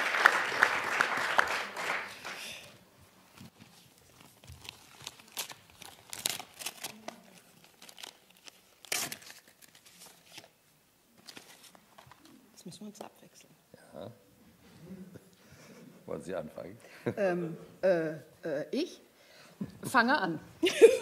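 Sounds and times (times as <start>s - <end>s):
audience applause: 0.0s - 2.7s
paper rustling and crinkling: 3.3s - 10.6s, 11.2s - 12.3s.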